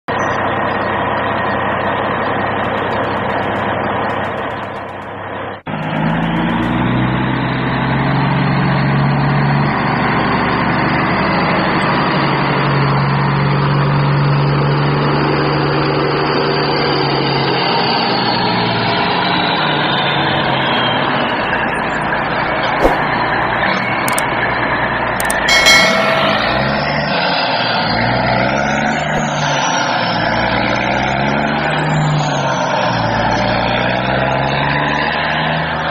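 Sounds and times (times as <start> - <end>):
backhoe diesel engine working: 0.1 - 35.9
metal clanks: 2.5 - 7.1, 25.2 - 27.4.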